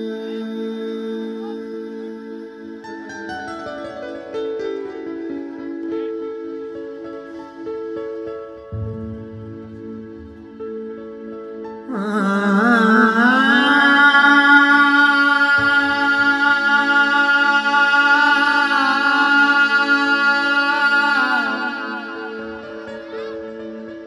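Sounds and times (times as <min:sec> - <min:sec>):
man singing long note: 0:11.9 - 0:22.9.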